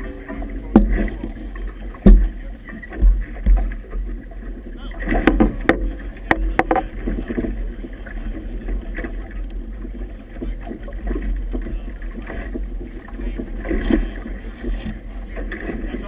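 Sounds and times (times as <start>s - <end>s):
choppy water slapping a boat: 0.0s - 16.0s
sharp knocks: 0.7s - 1.1s, 2.0s - 3.8s.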